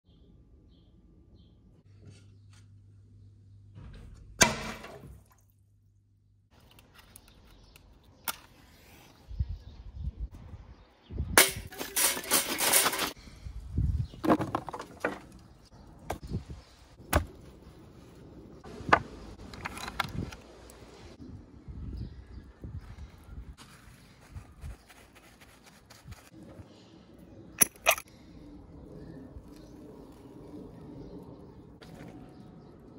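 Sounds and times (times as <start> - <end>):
metal chimney starter clattering on stone: 11.4 - 13.2
cooking gear knocking and clattering: 11.6 - 13.2.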